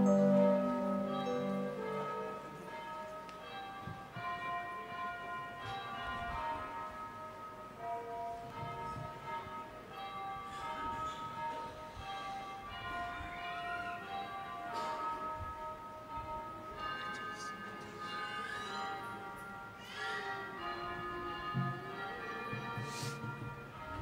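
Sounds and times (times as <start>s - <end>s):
church bells ringing: 0.0s - 24.0s.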